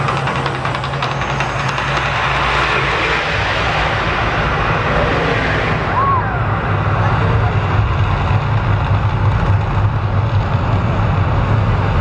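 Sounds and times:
deep rumble of fire eruption: 0.0s - 12.0s.

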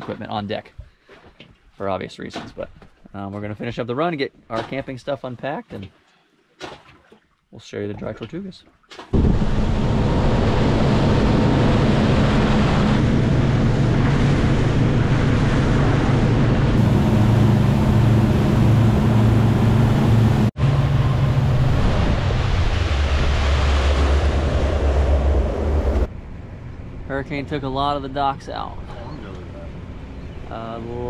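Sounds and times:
boat engine running: 9.2s - 26.1s
water rushing: 9.2s - 26.1s
wind on microphone: 9.2s - 26.1s.

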